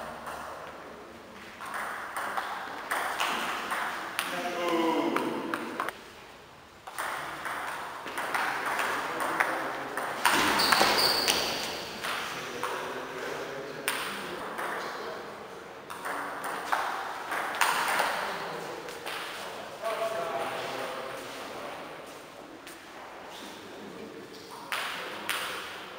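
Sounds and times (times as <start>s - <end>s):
ping pong ball clicking: 1.6s - 4.3s
high squeak: 10.4s - 11.7s.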